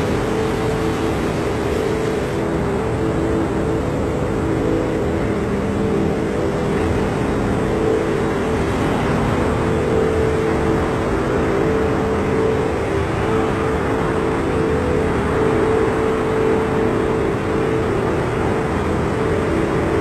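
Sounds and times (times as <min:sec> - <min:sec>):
dense rushing noise: 0:00.0 - 0:20.0
low multi-tone hum: 0:00.0 - 0:20.0.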